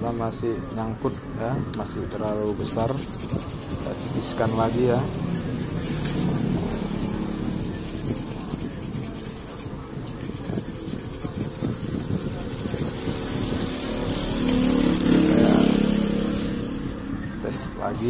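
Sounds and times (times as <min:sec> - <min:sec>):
brush scraping on abrasive disc: 0:02.1 - 0:05.0, 0:05.6 - 0:14.6.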